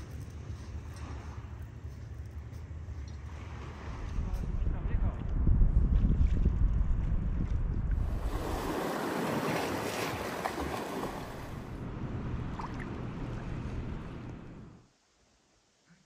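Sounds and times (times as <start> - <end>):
wind rumbling on microphone: 0.0 - 14.8
sea water rushing: 7.9 - 14.8.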